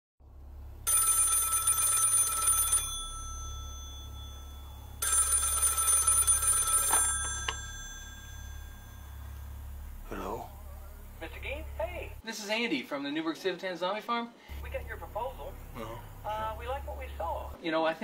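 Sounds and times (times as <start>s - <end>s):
telephone bell ringing: 0.9s - 9.6s.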